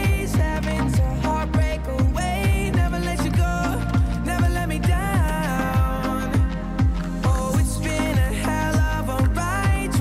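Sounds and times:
drum beat: 0.0 - 10.0.

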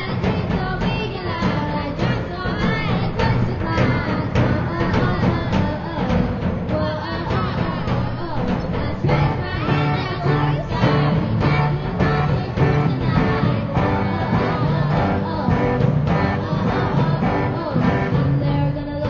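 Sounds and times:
drum beat: 0.0 - 19.0
girl singing: 0.0 - 19.0
electric guitar: 9.1 - 19.0.

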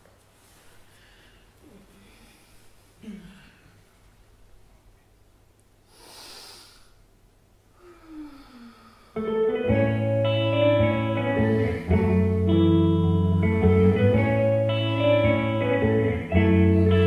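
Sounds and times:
guitar-led music: 9.2 - 17.0.

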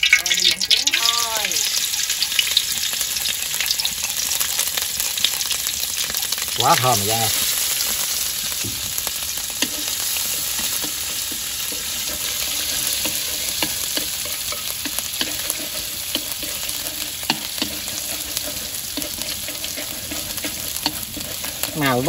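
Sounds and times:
oil sizzling in pan: 0.0 - 22.0
spatula clicking and scraping: 9.2 - 22.0.

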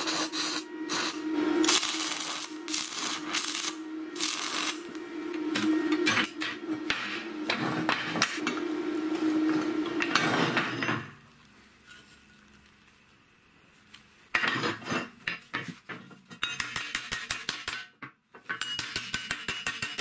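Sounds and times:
steady hum: 0.0 - 11.0
hammer striking sheet steel: 18.6 - 20.0.

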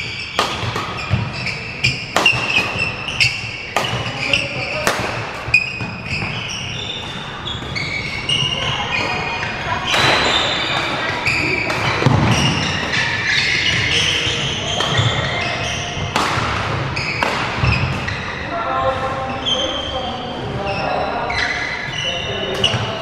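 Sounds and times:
racket striking shuttlecock: 0.0 - 6.4, 9.8 - 14.1, 14.7 - 15.4, 16.0 - 18.1
shoes squeaking on wooden floor: 0.0 - 23.0.

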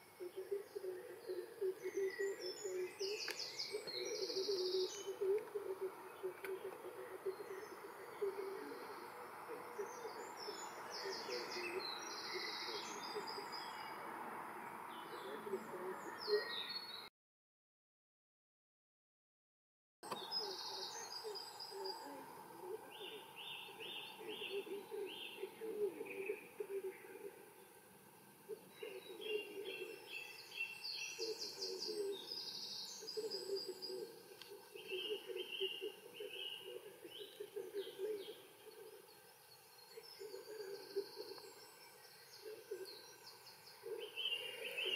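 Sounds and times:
outdoor background hiss: 0.0 - 17.0, 20.0 - 44.9
small birds singing: 0.0 - 17.1, 20.0 - 44.9.

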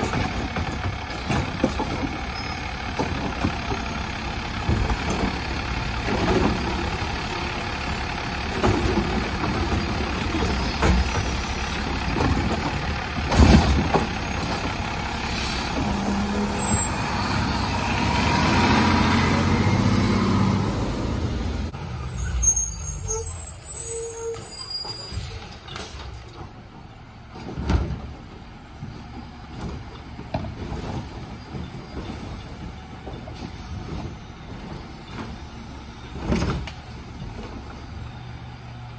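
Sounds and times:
diesel engine running: 0.0 - 23.9.

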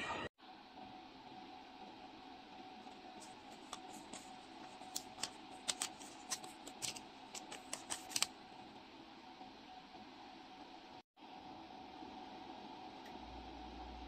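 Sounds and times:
paper receipt crackling: 3.2 - 8.4.

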